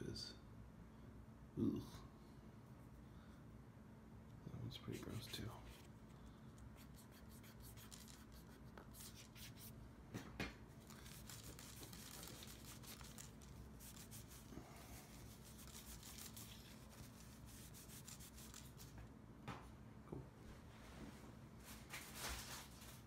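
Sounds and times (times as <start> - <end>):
cloth rubbing on camera: 6.8 - 9.8, 10.8 - 19.0.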